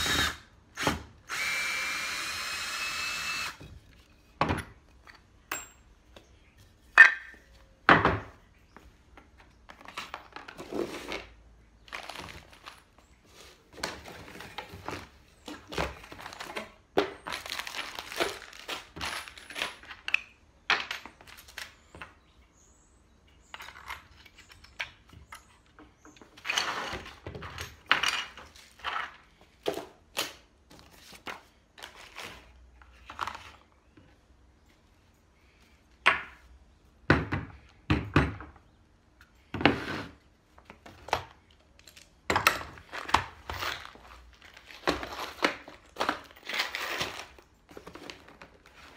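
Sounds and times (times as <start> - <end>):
cardboard packaging rustling: 11.8 - 19.6.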